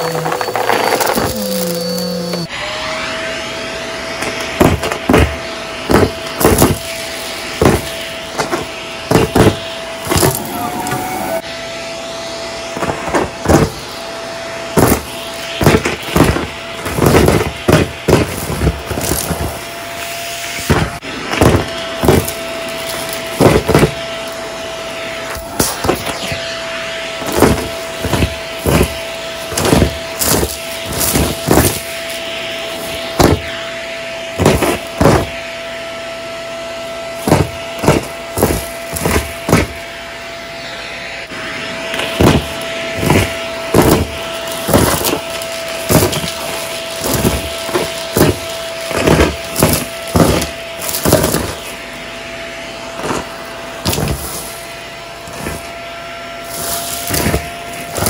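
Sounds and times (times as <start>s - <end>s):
debris rattling through vacuum: 0.0s - 2.5s, 14.8s - 24.4s, 27.1s - 33.6s, 37.2s - 39.8s, 42.0s - 51.8s, 52.9s - 55.8s, 56.4s - 58.0s
vacuum cleaner whining: 0.0s - 58.0s.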